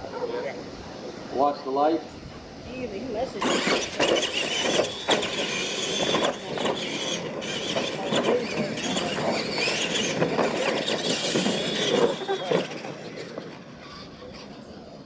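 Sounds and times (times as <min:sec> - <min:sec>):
toy truck motor whine: 0:03.3 - 0:15.0
trucks landing knocks: 0:03.4 - 0:14.6.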